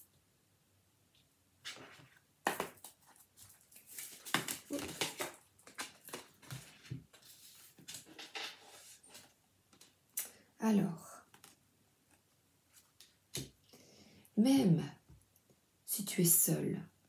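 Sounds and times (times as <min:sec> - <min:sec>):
cards being shuffled: 0:01.6 - 0:09.9.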